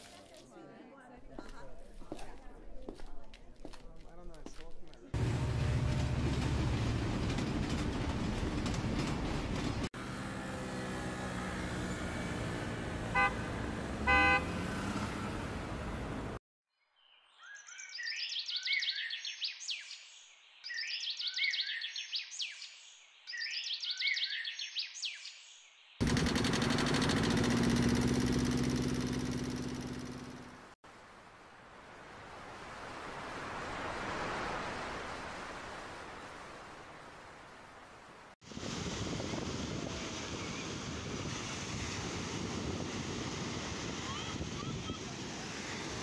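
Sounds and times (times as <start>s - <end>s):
traffic-like noise: 1.2s - 16.4s
train running on rails: 5.2s - 11.3s, 26.0s - 30.4s, 38.5s - 46.0s
boat engine droning: 5.2s - 16.4s, 26.0s - 30.7s
horn blasts: 12.9s - 15.2s.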